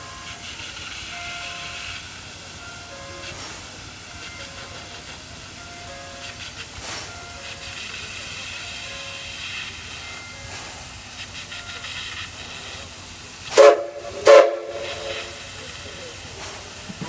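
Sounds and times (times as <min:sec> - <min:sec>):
steam whistle toots: 0:13.5 - 0:15.5.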